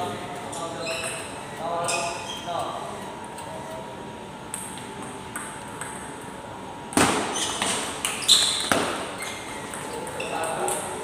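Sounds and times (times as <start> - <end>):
table tennis ball clicks and knocks: 4.5 - 6.1.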